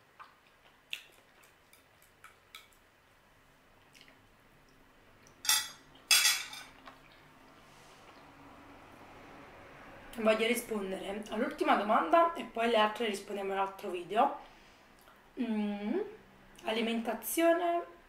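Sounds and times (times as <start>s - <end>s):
fork clattering on plate: 5.4s - 6.7s.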